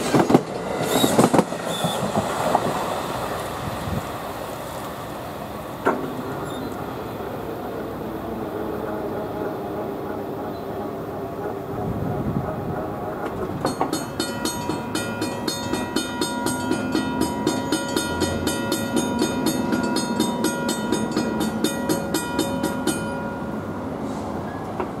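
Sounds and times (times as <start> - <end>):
low rumble of a train: 0.0 - 25.0
crossing warning bell ringing: 5.2 - 25.0.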